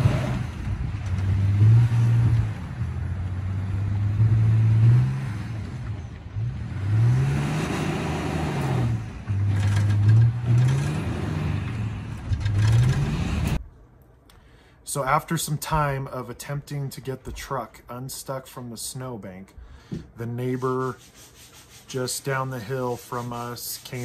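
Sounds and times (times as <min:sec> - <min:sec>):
truck engine revving: 0:00.0 - 0:13.6.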